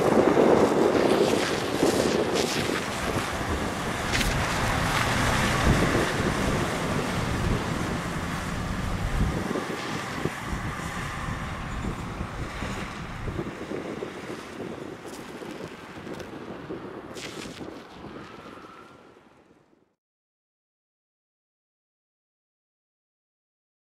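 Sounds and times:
fire engine diesel rumbling: 0.0 - 15.0
wind buffeting microphone: 0.0 - 19.7.

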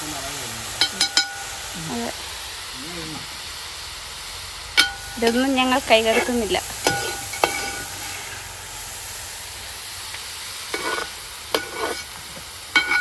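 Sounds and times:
onions sizzling in hot oil: 0.0 - 13.0
ladle clinking against pot: 12.8 - 13.0.

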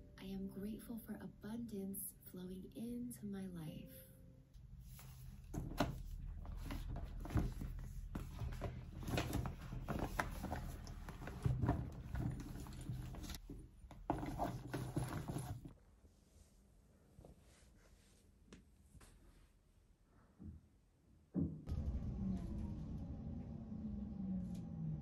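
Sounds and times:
bag rustling: 4.8 - 15.7
items knocking and clicking in bag: 5.4 - 15.7.

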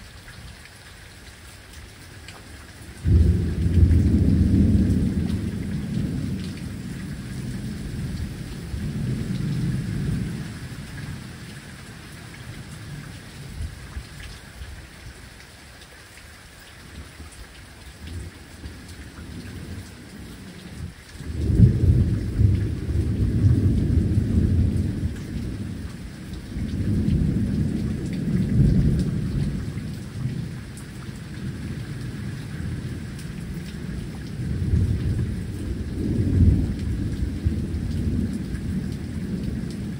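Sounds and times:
steady rain falling: 0.0 - 39.9
thunder rumbling: 3.0 - 11.3, 20.8 - 30.6, 31.4 - 39.9.

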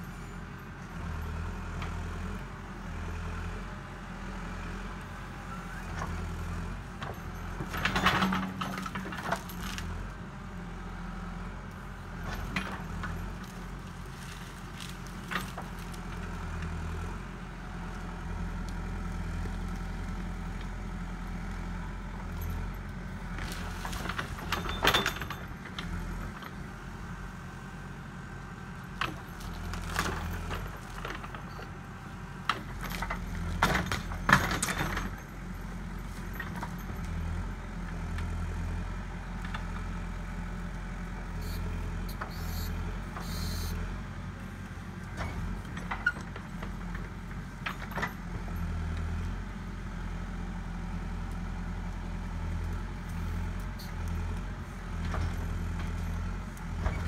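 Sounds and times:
diesel engine running: 0.0 - 57.0
metal clanking and scraping: 7.0 - 10.0, 23.3 - 26.6.

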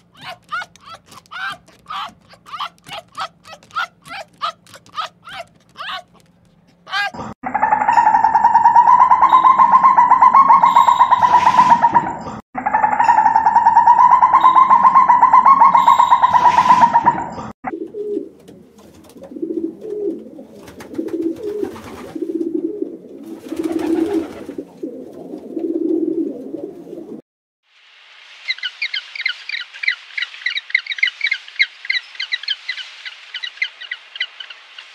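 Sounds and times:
civet pulsing churr: 0.0 - 17.4
pigeon cooing: 0.0 - 27.2.

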